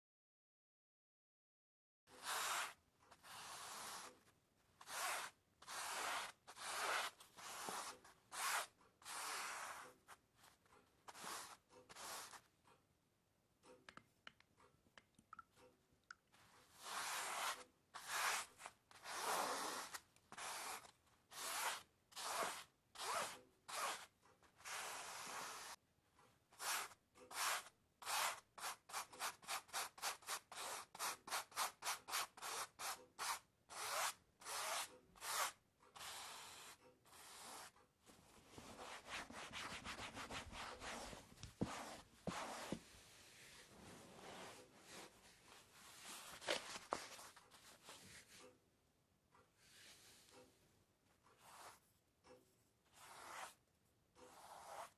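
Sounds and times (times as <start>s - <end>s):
dry rubbing strokes: 2.2s - 12.5s, 16.7s - 25.8s, 38.4s - 48.4s, 52.9s - 53.6s, 54.2s - 54.9s.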